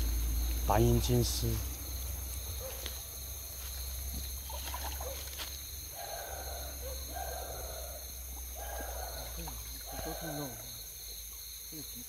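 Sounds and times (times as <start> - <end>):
insect chorus trilling: 0.0 - 12.0
buzzy animal call: 5.9 - 10.7.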